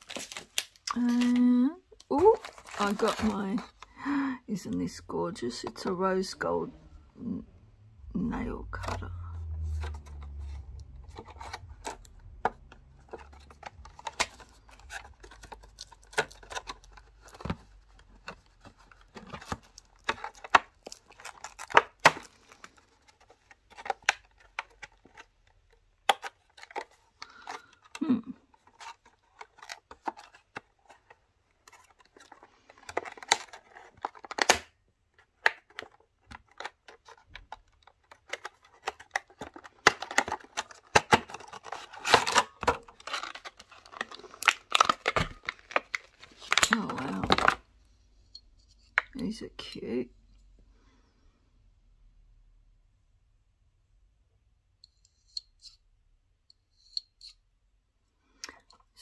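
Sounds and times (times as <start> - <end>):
plastic bags crinkling: 0.0 - 3.9, 35.6 - 47.7.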